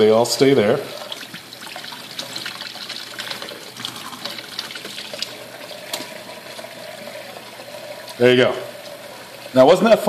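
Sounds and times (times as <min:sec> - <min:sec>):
faucet running into a sink: 0:00.0 - 0:10.0
small splashes and ticks: 0:01.1 - 0:06.7.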